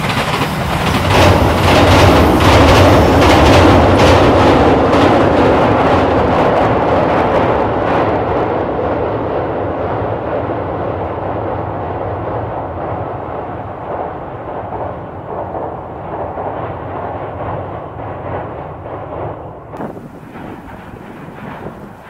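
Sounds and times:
train wheels clacking: 0.0 - 7.6, 12.3 - 22.0
train rumble: 0.0 - 22.0.

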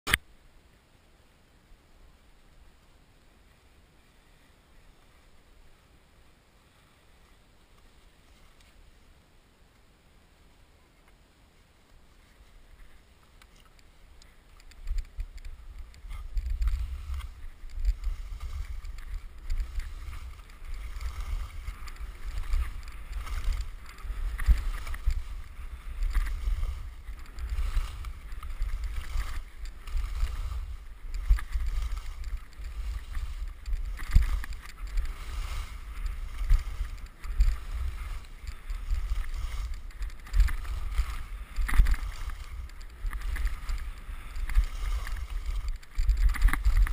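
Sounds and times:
skis scraping over snow: 2.0 - 9.2, 10.4 - 46.9
wind rumble on microphone: 12.1 - 46.9.

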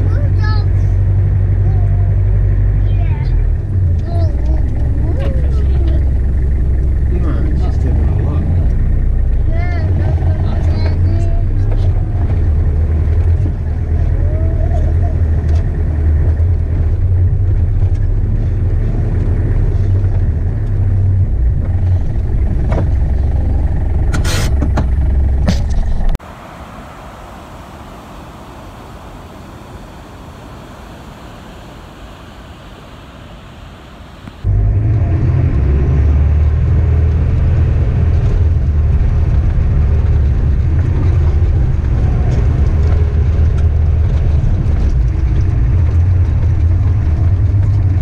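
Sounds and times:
vehicle cab rumble: 0.0 - 48.0
water rushing along canal: 26.2 - 34.5.

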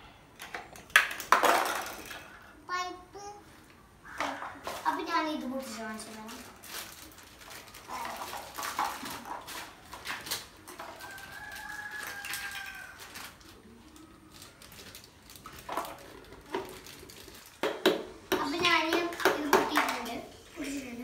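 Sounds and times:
plastic bags rustling: 4.6 - 17.8.

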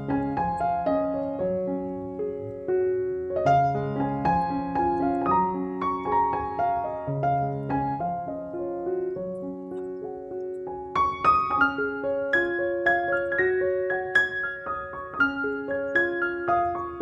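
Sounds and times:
gentle solo piano music: 0.0 - 17.0.

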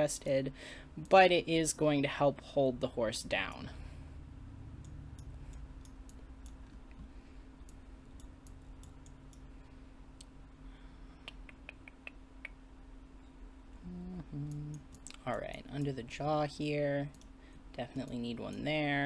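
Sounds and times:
faint steady hum: 0.0 - 19.0
computer mouse clicking: 4.8 - 9.5, 17.0 - 17.3.

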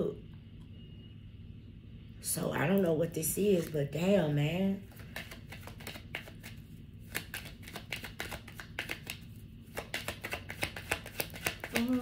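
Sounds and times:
cards being shuffled: 4.8 - 12.0.

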